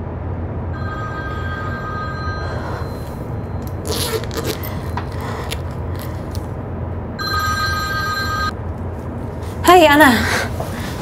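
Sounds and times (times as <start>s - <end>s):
low drone of ship engines: 0.0s - 11.0s
mobile phone ringing: 0.8s - 3.0s, 7.2s - 8.6s.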